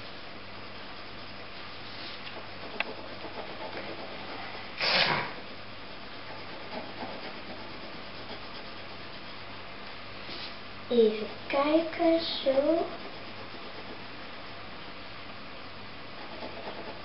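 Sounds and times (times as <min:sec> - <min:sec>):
pencil scratching on paper: 0:00.7 - 0:05.1, 0:05.9 - 0:09.5, 0:11.2 - 0:14.6, 0:16.2 - 0:17.0.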